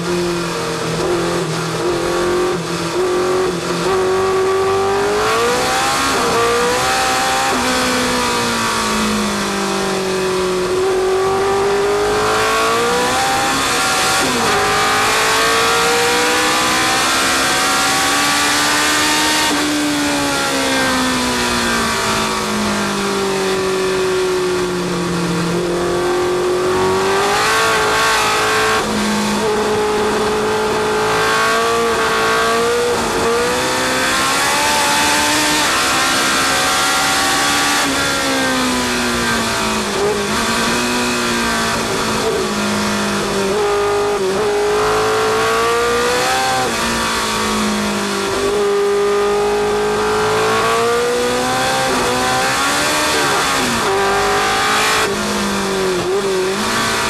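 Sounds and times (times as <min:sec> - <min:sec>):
racing car engine accelerating: 0:00.0 - 0:57.0.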